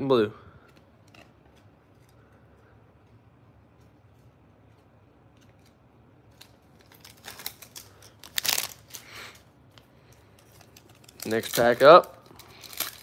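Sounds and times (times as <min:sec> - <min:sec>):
foil wrapper crinkling: 0:05.4 - 0:09.4, 0:10.3 - 0:13.0.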